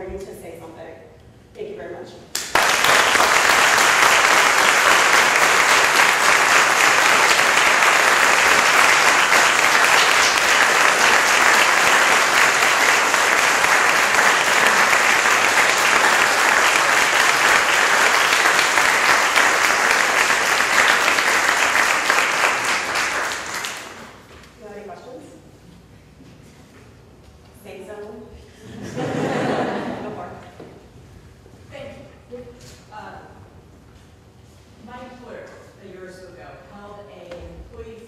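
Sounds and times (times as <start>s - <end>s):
audience applauding: 2.4s - 24.2s.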